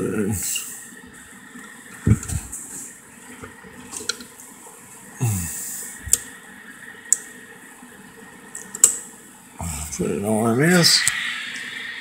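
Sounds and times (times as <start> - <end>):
cooling fan hissing: 0.0 - 12.0.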